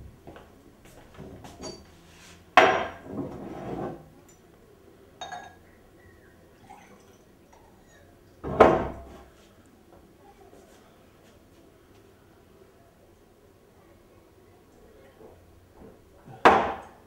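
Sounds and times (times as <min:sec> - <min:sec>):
glass clinks: 0:05.2 - 0:05.6
drink pouring: 0:06.5 - 0:08.0.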